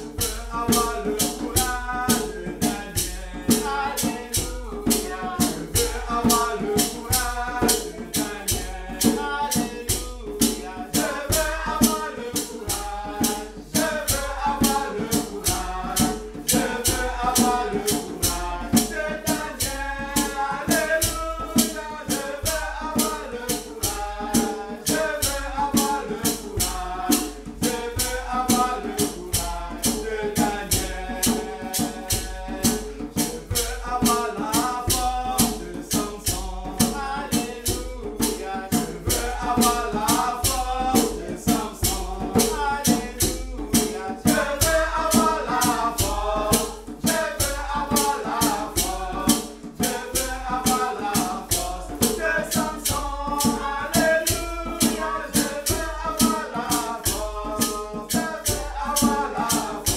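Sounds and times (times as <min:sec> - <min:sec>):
shaker rattling: 0:00.0 - 0:59.9.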